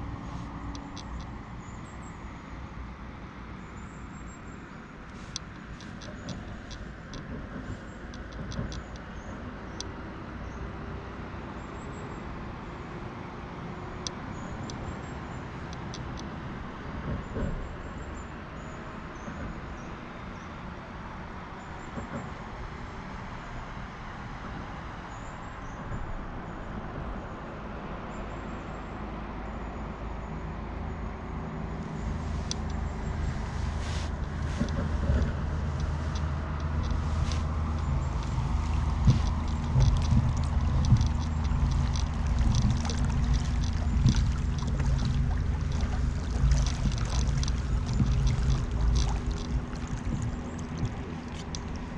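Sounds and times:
faint sharp ticks: 5.3 - 9.2, 32.0 - 51.9
low outdoor rumble: 31.3 - 51.9.

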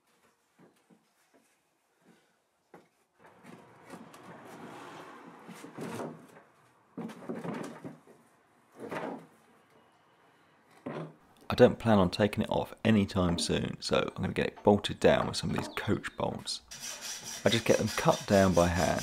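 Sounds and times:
metal scraping against steel plate: 16.7 - 19.0.

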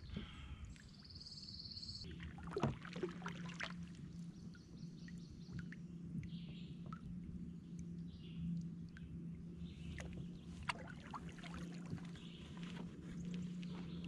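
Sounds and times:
kayak paddle splashing water: 2.1 - 4.2, 9.8 - 14.0.

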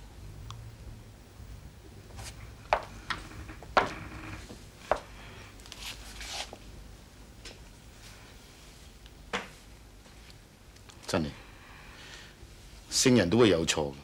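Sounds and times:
low room hum: 0.0 - 14.0
soft rustling: 2.0 - 6.7.

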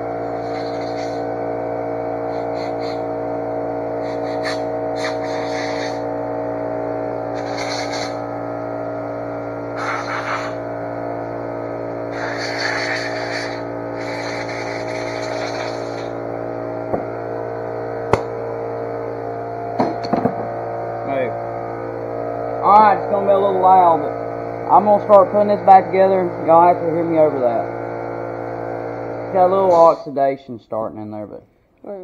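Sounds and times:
air compressor humming: 0.0 - 32.0
air blow gun hissing blasts: 4.0 - 6.1, 7.4 - 8.2, 9.8 - 10.6, 12.1 - 16.2
sharp knocks: 19.8 - 20.5.

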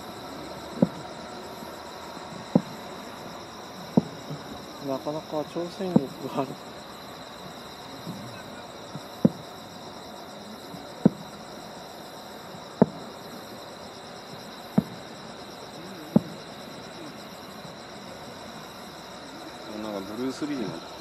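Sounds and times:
insects trilling: 0.0 - 21.0
sharp short thumps: 5.9 - 6.2.

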